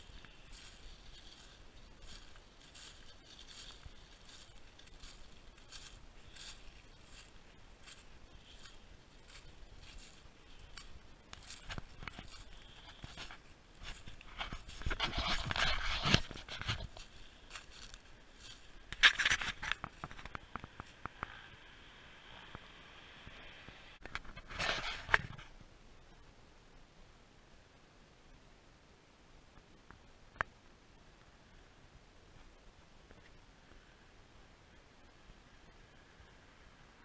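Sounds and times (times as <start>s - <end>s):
footsteps crunching dry leaves: 0.0s - 21.0s
scraping rustle of leaves: 0.0s - 25.6s.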